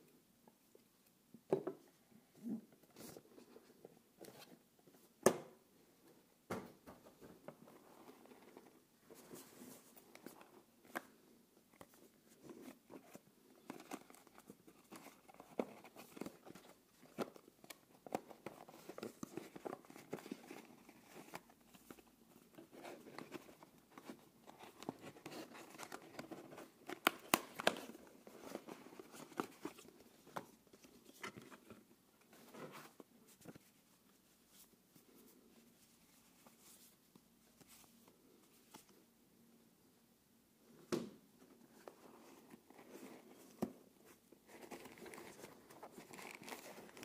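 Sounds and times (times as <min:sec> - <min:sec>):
paper and card rustling: 0:07.7 - 0:39.0, 0:41.7 - 0:47.0.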